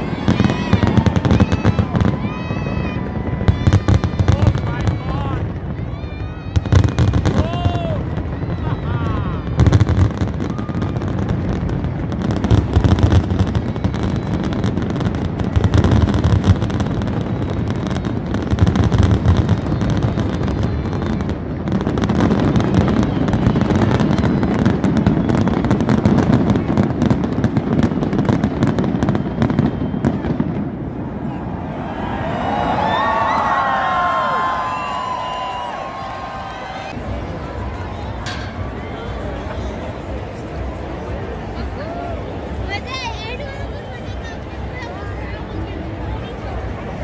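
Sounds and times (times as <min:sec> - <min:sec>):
fireworks booming: 0:00.0 - 0:31.8
fireworks crackling: 0:00.0 - 0:47.0.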